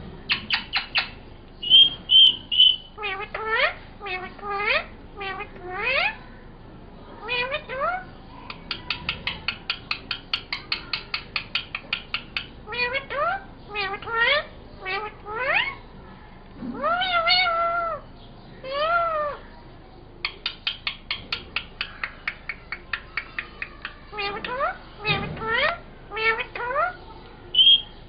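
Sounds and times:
parakeet meow-like calls: 0.3s - 6.2s, 7.2s - 15.8s, 16.7s - 19.4s, 20.2s - 28.0s
parakeet rising calls: 0.3s - 6.2s, 20.2s - 28.0s
parakeet clicking: 8.5s - 12.5s, 20.2s - 24.6s.

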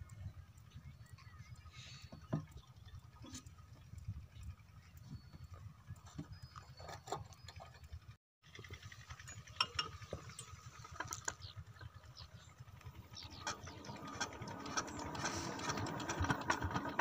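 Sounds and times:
engine starting handle clanking: 13.1s - 17.0s.

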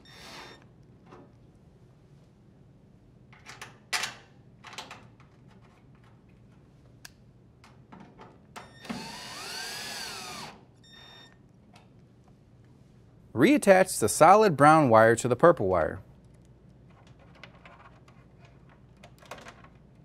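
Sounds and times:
cordless drill whine: 8.7s - 10.6s.

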